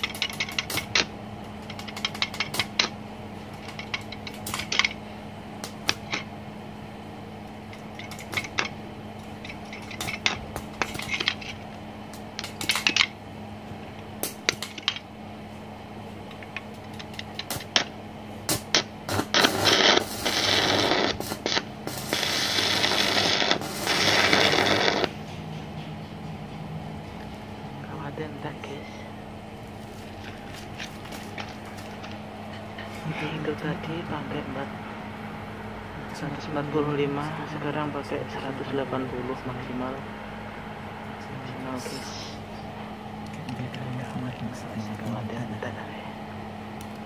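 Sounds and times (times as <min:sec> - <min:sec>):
welding arc crackling and hissing: 0:00.0 - 0:06.3, 0:07.7 - 0:13.1, 0:14.2 - 0:15.0, 0:16.4 - 0:25.2, 0:29.6 - 0:32.3
steady hum: 0:00.0 - 0:47.0.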